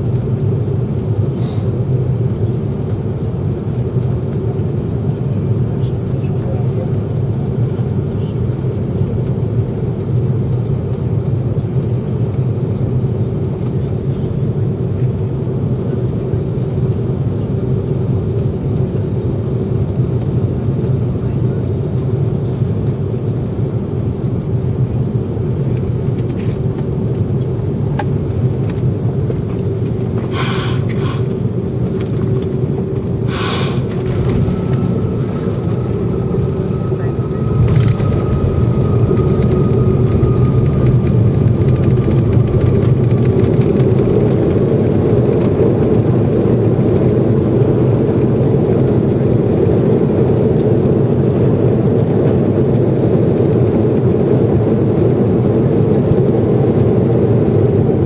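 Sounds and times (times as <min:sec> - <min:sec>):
jet engines and airflow rumble: 0:00.0 - 0:58.0
steady hum: 0:29.2 - 0:46.8
brief hissing: 0:30.3 - 0:31.3, 0:33.3 - 0:33.9.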